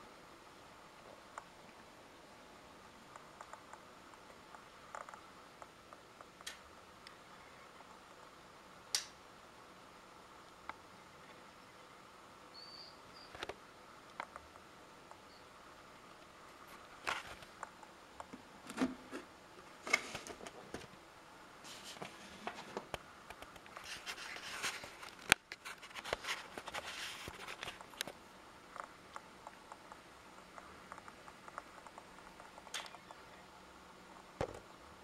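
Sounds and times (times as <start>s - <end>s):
sharp click: 8.9s - 9.2s
handling scraping and rustling: 16.4s - 17.7s, 18.3s - 21.0s, 21.6s - 29.6s.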